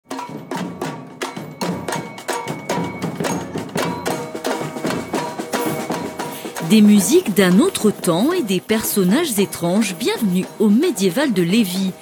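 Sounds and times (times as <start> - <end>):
snare drums marching beat: 0.1 - 8.2.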